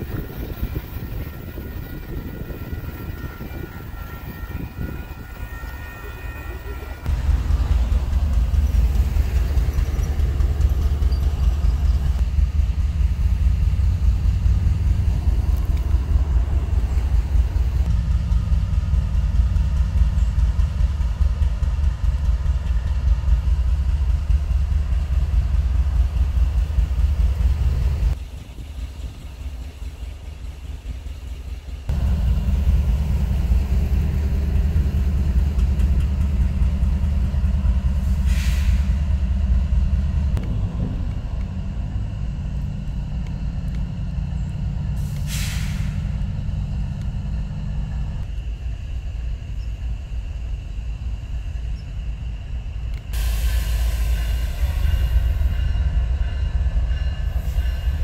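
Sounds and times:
diesel locomotive rumble: 0.0s - 58.0s.

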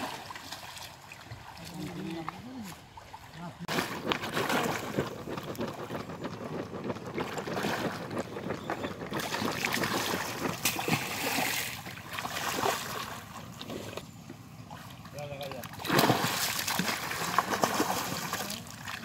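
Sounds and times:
people wading through water: 0.0s - 19.0s
fish thrashing in water: 3.6s - 14.1s, 15.6s - 19.0s.

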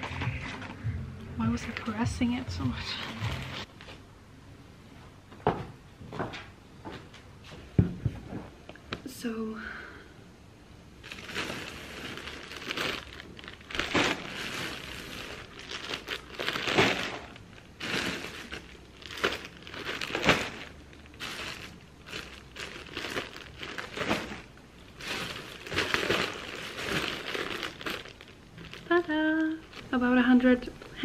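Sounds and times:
plastic bags crinkling and rustling: 0.0s - 0.8s, 1.5s - 4.0s, 11.0s - 31.0s.

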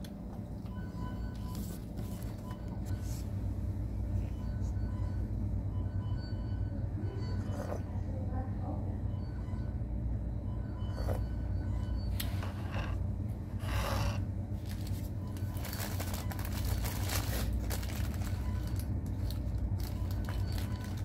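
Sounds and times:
paper wrapper rustling: 14.6s - 21.0s.

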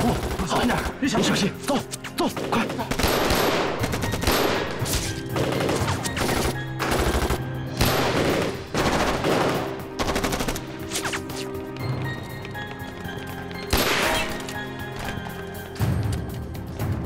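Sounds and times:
rapid gunfire: 0.0s - 1.0s, 2.2s - 10.7s
background music score: 0.0s - 17.0s.

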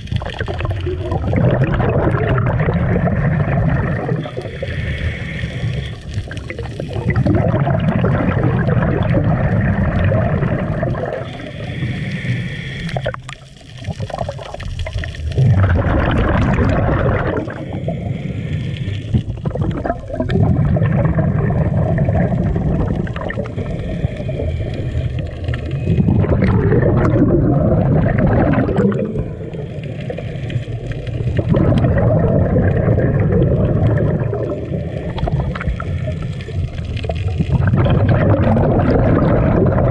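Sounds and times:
regulator bubbling exhales: 0.0s - 39.9s
regulator inhales: 4.4s - 6.2s, 11.3s - 13.2s, 17.5s - 19.2s, 23.4s - 25.8s.

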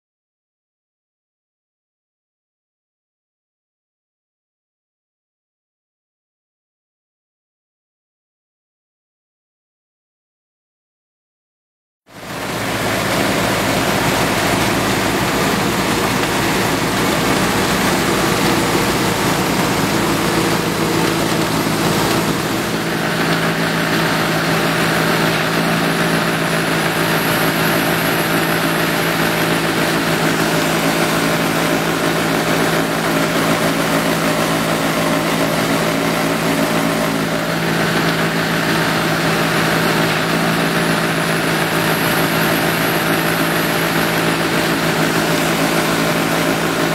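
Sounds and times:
snow-blower rotor churning snow: 12.1s - 46.9s
tractor engine running under load: 12.1s - 46.9s.

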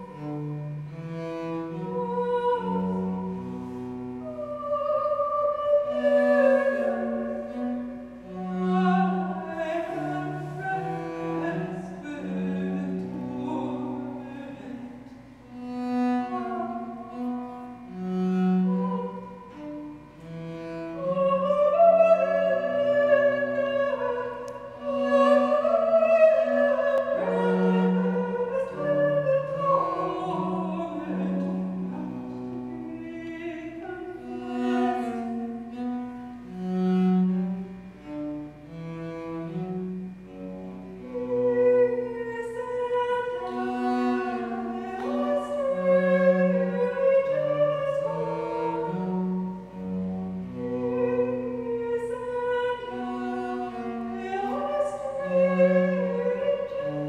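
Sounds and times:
cello bowing bass line: 0.0s - 57.0s.

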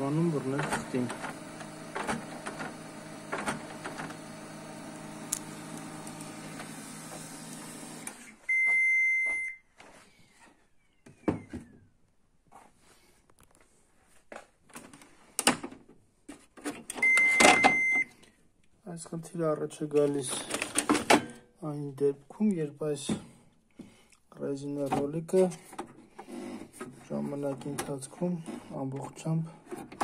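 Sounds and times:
printer motor hum: 0.0s - 8.4s
printer beep: 8.0s - 9.6s, 17.0s - 18.1s.

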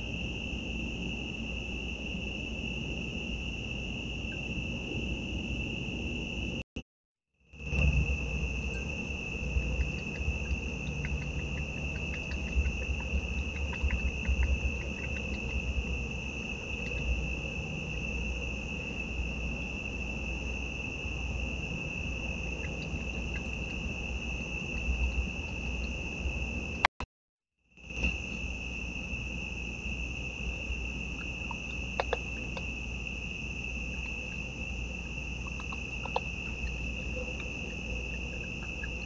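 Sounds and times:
crickets trilling: 0.0s - 6.6s, 7.5s - 26.9s, 27.8s - 39.0s
low rumble: 7.6s - 20.1s
faint ticks: 9.5s - 15.8s, 31.2s - 32.7s.

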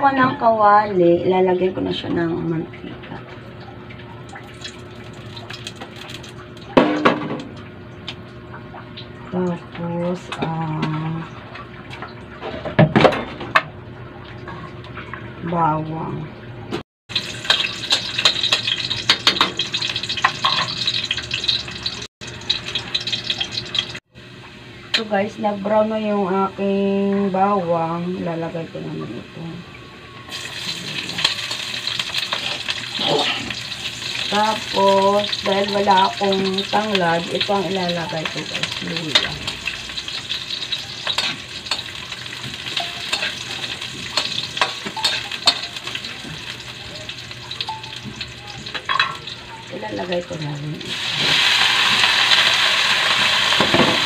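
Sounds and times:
garlic sizzling in hot oil: 4.5s - 6.8s, 17.1s - 24.0s, 30.3s - 54.0s
metal spatula scraping wok: 40.5s - 41.9s, 42.7s - 46.0s.

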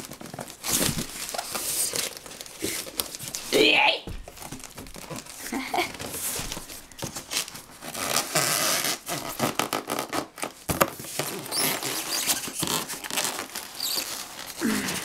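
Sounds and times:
styrofoam scraping cardboard box: 4.5s - 14.7s.

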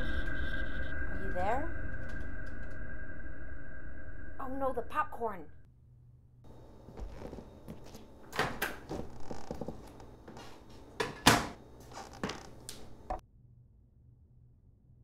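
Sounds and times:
kitchen clicks and knocks: 11.0s - 11.6s.

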